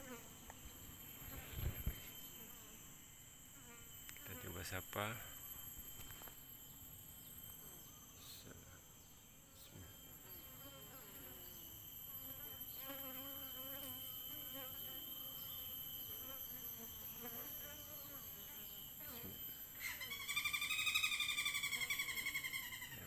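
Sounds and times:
bees buzzing: 0.0s - 6.1s.

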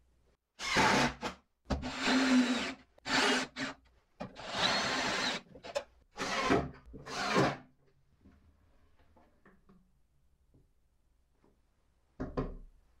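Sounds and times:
drill driving screws into wood: 0.6s - 3.8s, 4.4s - 5.4s.

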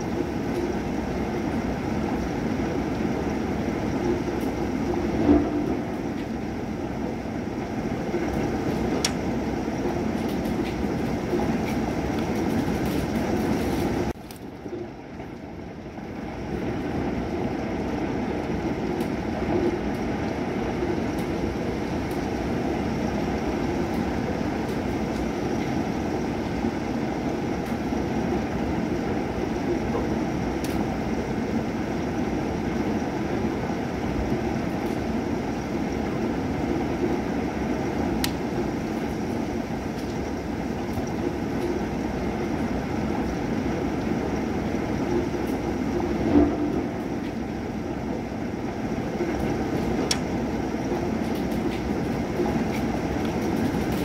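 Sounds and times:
steady rain: 0.0s - 54.0s
low thunder rumble: 1.0s - 13.7s.

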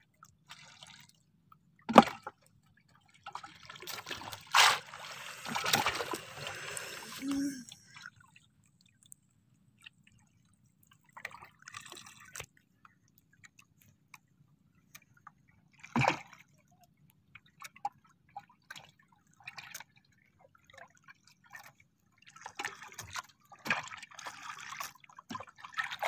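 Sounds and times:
water lapping at boat hull: 3.0s - 8.1s, 22.2s - 26.0s.

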